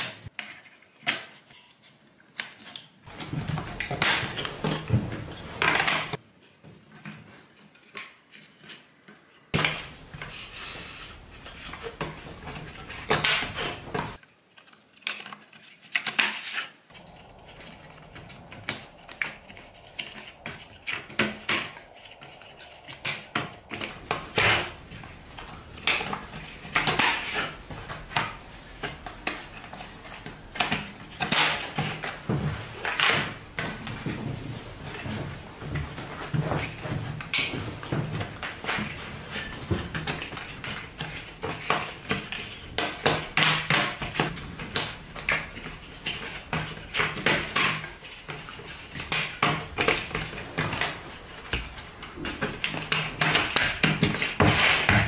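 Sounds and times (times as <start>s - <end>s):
wooden strips clicking and knocking: 6.9s - 55.0s.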